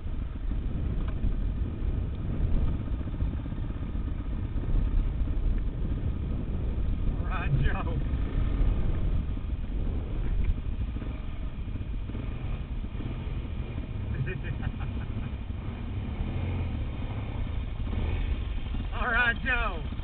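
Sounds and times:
wind on microphone: 0.0 - 14.4
motorcycle engine rumbling: 0.0 - 20.0.

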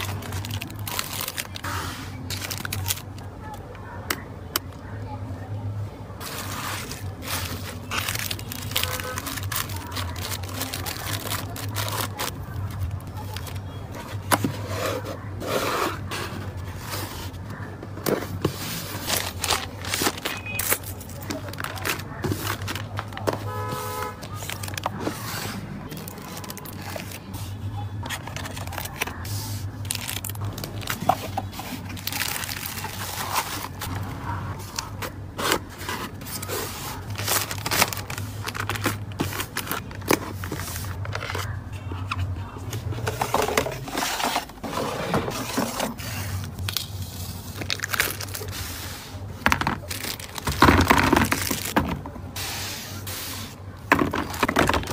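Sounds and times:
plastic mailer rustling: 0.0 - 3.2, 6.2 - 23.6, 24.2 - 41.7, 42.8 - 54.9
tape rolls being handled: 6.2 - 23.5, 24.2 - 27.4, 28.0 - 54.9
cardboard box scraping on desk: 14.4 - 17.2, 43.7 - 46.3.

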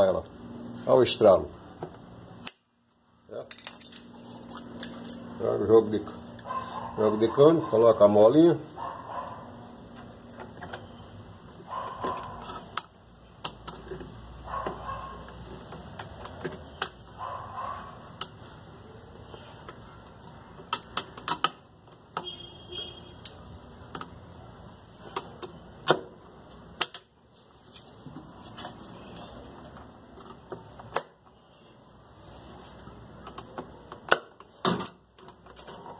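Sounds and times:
clicks and knocks of parts on metal: 20.6 - 22.3.

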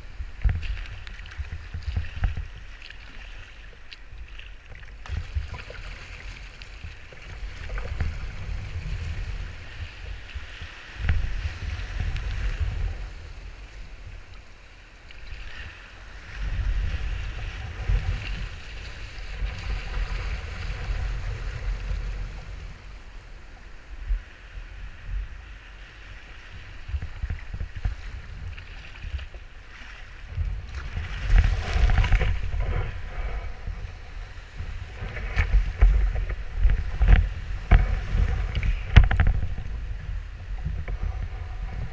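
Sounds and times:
wind buffeting microphone: 0.0 - 14.3, 15.4 - 41.9
breaking surf splashing: 15.3 - 41.9.

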